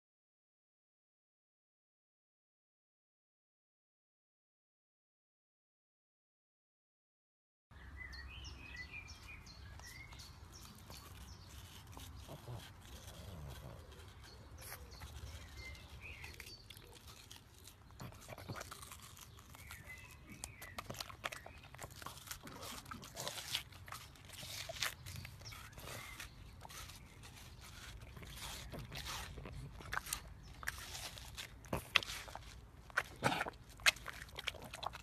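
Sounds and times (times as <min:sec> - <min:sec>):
birds chirping: 0:07.8 - 0:35.0
dog chewing watermelon: 0:09.1 - 0:35.0.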